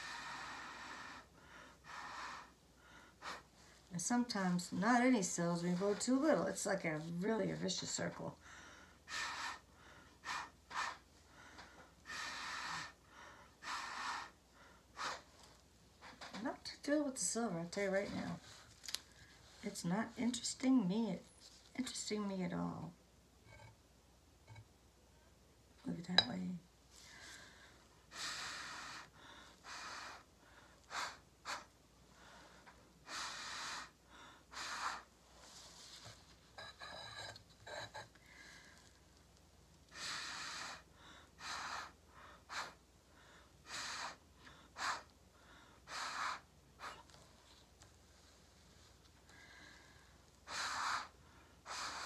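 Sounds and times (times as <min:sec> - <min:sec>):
breath puffs through a straw: 0:15.0 - 0:15.5, 0:33.1 - 0:35.8, 0:39.9 - 0:42.8.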